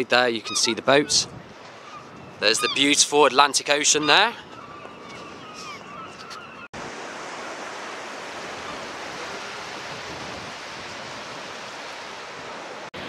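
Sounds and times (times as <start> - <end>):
sea surf rushing: 6.7 - 13.0.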